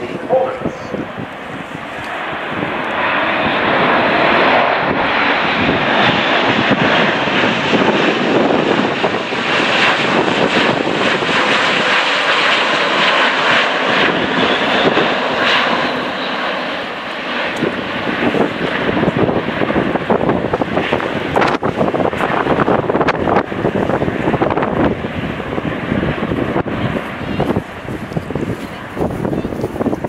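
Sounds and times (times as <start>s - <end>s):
turboprop aircraft flying overhead: 0.0s - 30.0s.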